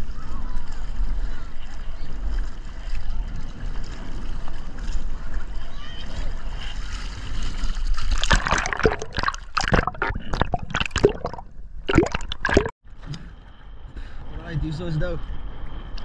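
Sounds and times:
water splashing and gurgling: 0:06.9 - 0:12.8
bubbly gulps: 0:08.1 - 0:12.7.

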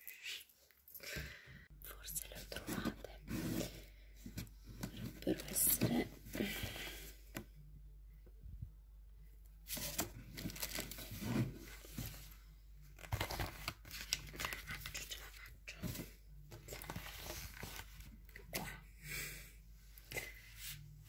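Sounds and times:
paper and plastic crinkling: 0:09.7 - 0:12.2, 0:12.9 - 0:18.4.

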